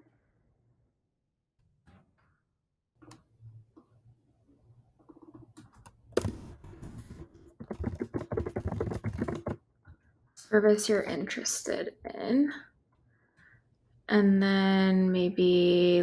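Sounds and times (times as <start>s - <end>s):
keyboard typing: 5.1s - 9.6s.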